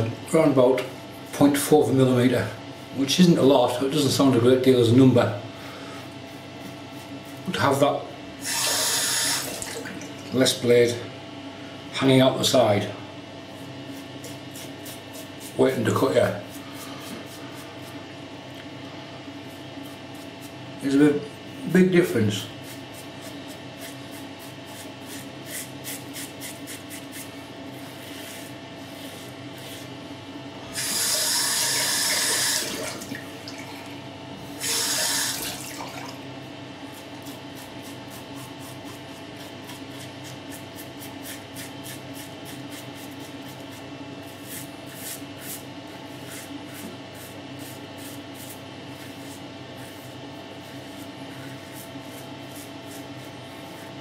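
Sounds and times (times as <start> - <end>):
razor scraping stubble: 22.6 - 30.0.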